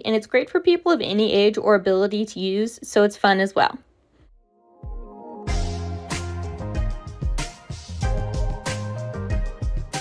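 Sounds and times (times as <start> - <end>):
background music with drum beat: 4.8 - 10.0.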